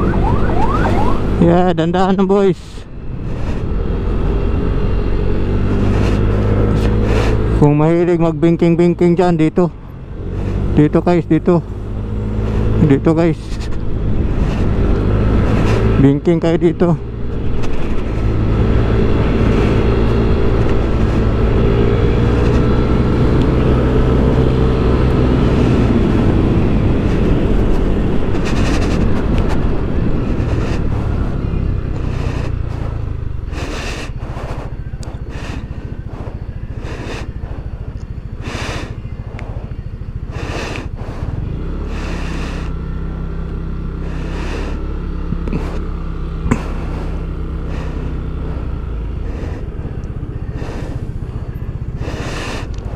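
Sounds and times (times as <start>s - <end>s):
scooter engine running: 3.2s - 7.7s, 17.0s - 52.9s.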